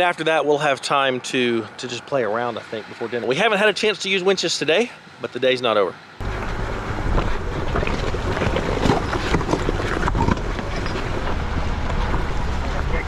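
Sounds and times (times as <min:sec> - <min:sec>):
crackles and knocks: 0:06.2 - 0:12.7
wind buffeting microphone: 0:06.2 - 0:13.0.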